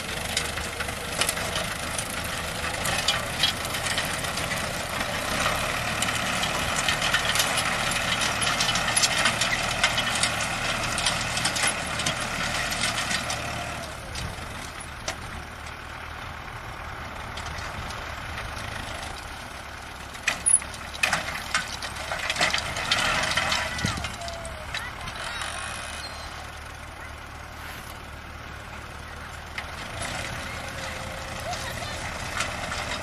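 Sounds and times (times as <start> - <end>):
tractor diesel engine running: 0.0 - 33.0
fine rattling clatter: 20.2 - 24.2.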